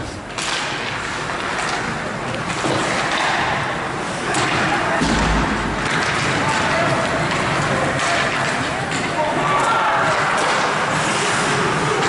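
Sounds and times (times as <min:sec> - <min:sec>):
skates scraping ice: 0:00.0 - 0:12.0.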